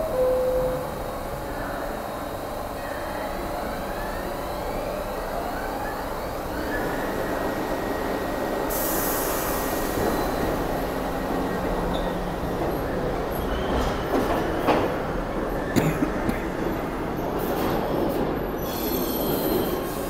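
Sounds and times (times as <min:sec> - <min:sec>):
rumble of train cars: 0:00.0 - 0:20.0
subway motor whine: 0:00.0 - 0:20.0.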